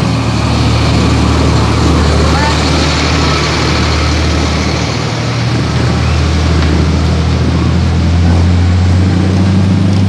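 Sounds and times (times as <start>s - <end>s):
diesel truck engine running: 0.0s - 10.0s.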